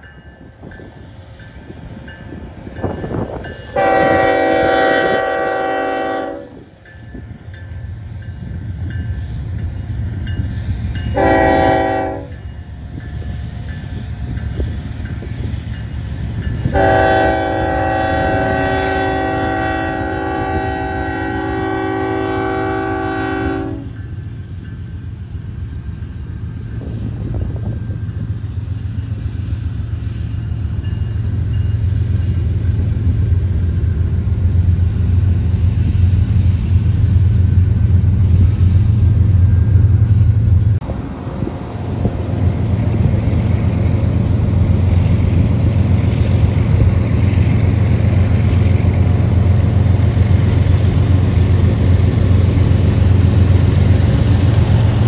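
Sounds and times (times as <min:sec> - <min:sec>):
locomotive engine rumble: 0:00.1 - 0:55.0
locomotive air horn blast: 0:03.7 - 0:06.6, 0:11.1 - 0:12.4, 0:16.7 - 0:24.0.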